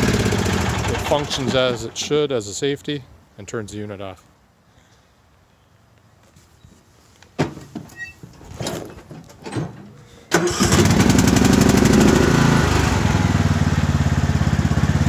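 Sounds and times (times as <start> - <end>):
lawn tractor engine running: 0.0 - 2.2, 9.7 - 15.0
clunks and knocks: 7.4 - 10.0.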